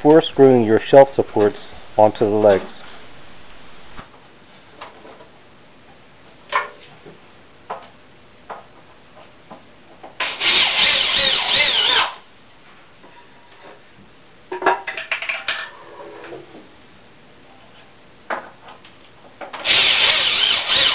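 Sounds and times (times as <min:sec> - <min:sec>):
power drill driving screw into wood: 0:10.2 - 0:12.2, 0:19.6 - 0:20.9.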